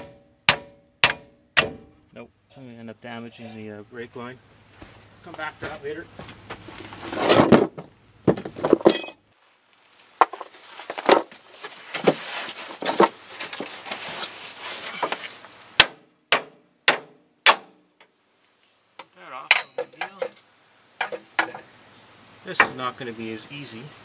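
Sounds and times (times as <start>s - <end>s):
hammer strikes on steel: 0.0s - 2.0s, 15.8s - 17.8s, 21.0s - 21.6s
metal tools clattering: 8.7s - 9.2s, 19.4s - 21.6s.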